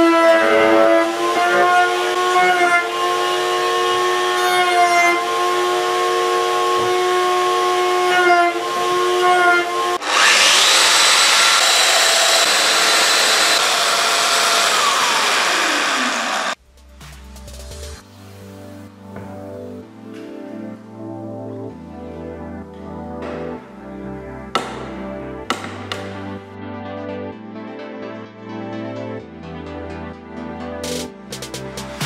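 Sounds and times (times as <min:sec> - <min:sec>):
table saw motor whine: 0:00.0 - 0:16.6.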